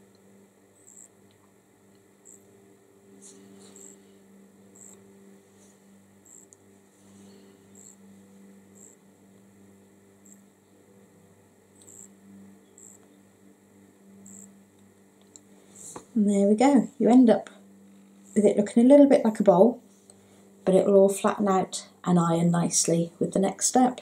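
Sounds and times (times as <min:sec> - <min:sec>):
faint electrical hum: 0:00.0 - 0:24.0
high-pitched ticks: 0:11.8 - 0:12.1.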